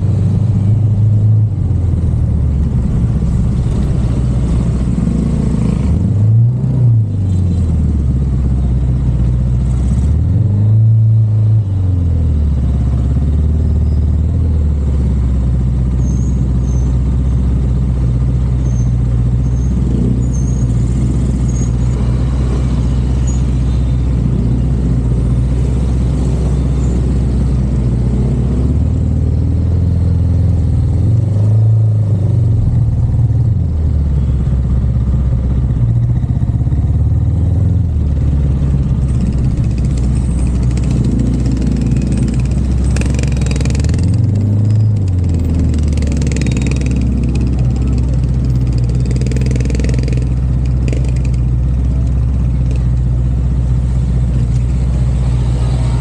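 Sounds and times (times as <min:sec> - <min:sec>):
car engine and road drone: 0:00.0 - 0:56.0.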